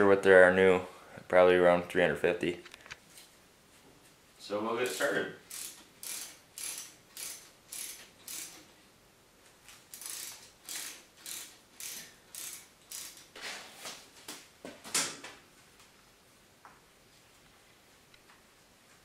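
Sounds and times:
ratchet wrench clicking: 0:04.8 - 0:08.7, 0:09.9 - 0:13.3.

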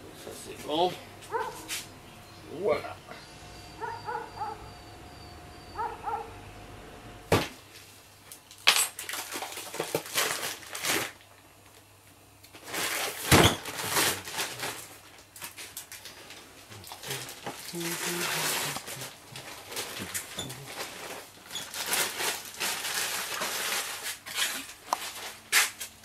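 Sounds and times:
brief high whine: 0:03.0 - 0:07.3.

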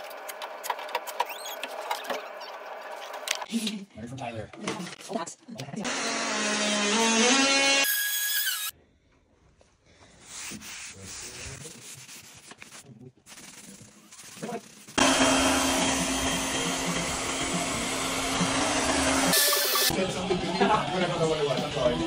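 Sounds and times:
rubbing and handling sounds: 0:09.5 - 0:15.6
hair dryer blowing: 0:15.0 - 0:19.9.

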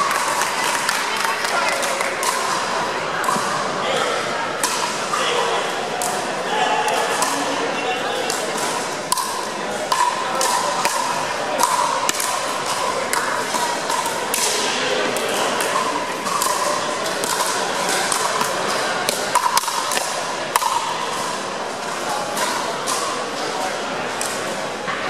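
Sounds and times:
paddles hitting plastic ball: 0:08.2 - 0:21.4.

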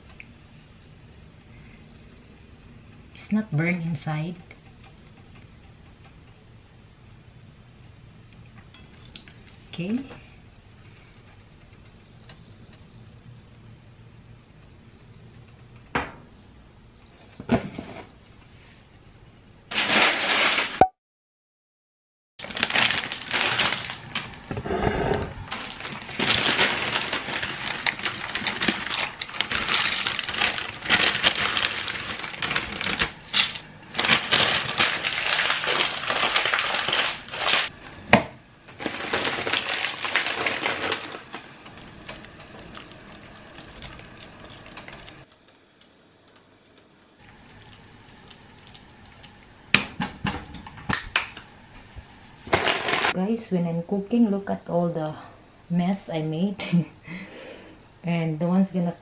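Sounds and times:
noodles rattling into a pot: 0:19.7 - 0:20.8, 0:22.4 - 0:24.5, 0:25.5 - 0:37.7, 0:38.7 - 0:45.3, 0:52.5 - 0:53.2
plastic bag crinkling: 0:19.7 - 0:20.9, 0:22.4 - 0:24.5, 0:25.5 - 0:37.7, 0:38.7 - 0:45.6, 0:52.5 - 0:53.2.

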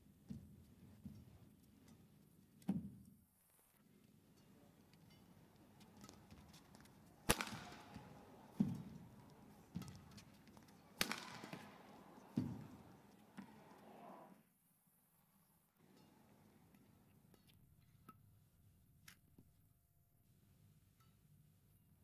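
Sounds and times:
indoor hall ambience: 0:04.0 - 0:14.5
rackets hitting shuttlecock: 0:05.8 - 0:14.0.

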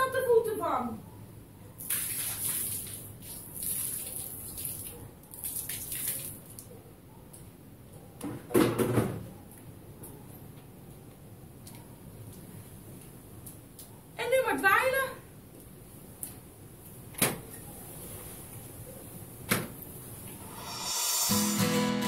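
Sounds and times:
water splashing on tiled floor: 0:01.8 - 0:06.7.

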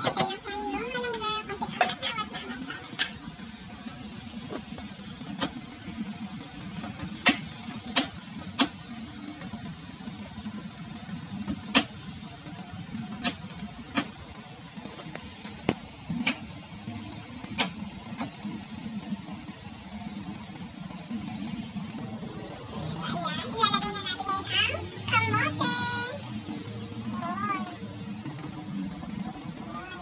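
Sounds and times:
pot boiling with bubbling rumble: 0:00.0 - 0:30.0.

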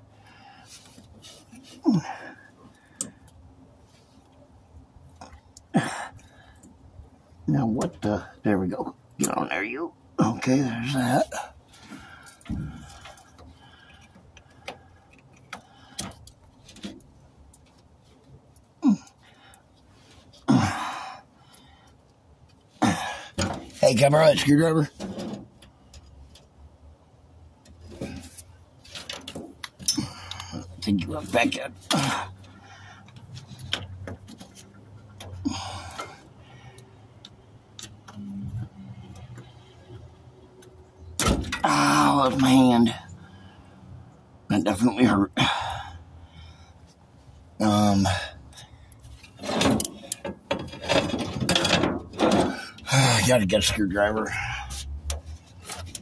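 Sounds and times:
low steady hum: 0:00.0 - 0:56.0
person grunting: 0:01.8 - 0:02.4, 0:05.8 - 0:06.2, 0:18.8 - 0:19.1, 0:20.5 - 0:21.2
hands clicking and tapping parts: 0:11.9 - 0:19.2.

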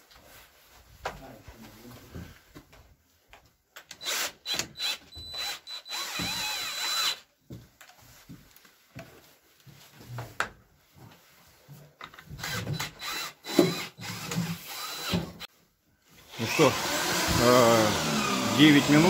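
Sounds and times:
cordless drill driving screws: 0:03.9 - 0:07.3, 0:12.3 - 0:15.5, 0:16.3 - 0:19.0.

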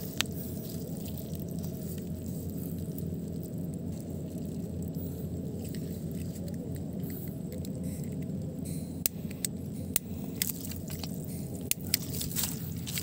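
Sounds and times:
steady low rumble: 0:00.0 - 0:13.0
fuse hissing: 0:01.6 - 0:13.0
lighter clicks and crackles: 0:06.5 - 0:12.1.

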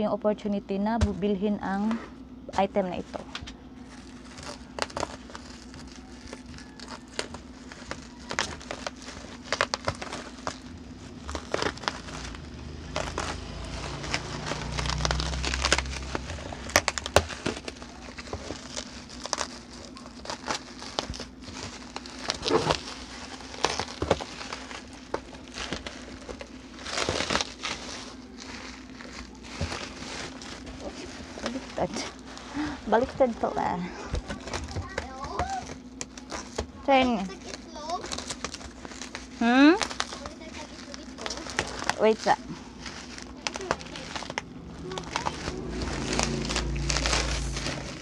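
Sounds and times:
steady low hum: 0:00.0 - 0:48.0
bubble wrap crinkling: 0:02.8 - 0:48.0.

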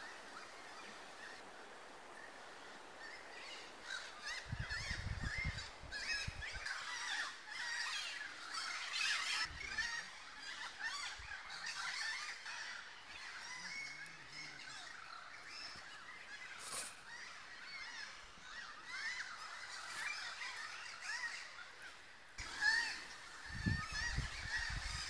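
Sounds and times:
birds chirping and calling: 0:03.1 - 0:25.0
wind rumble on microphone: 0:03.7 - 0:06.7, 0:22.4 - 0:25.0.

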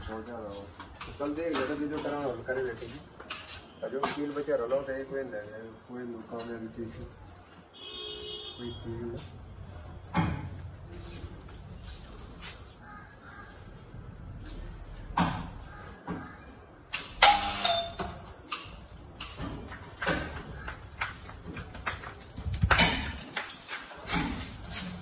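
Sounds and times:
metallic ringing: 0:17.0 - 0:20.7
metal frame knocking and clanking: 0:17.2 - 0:25.0.

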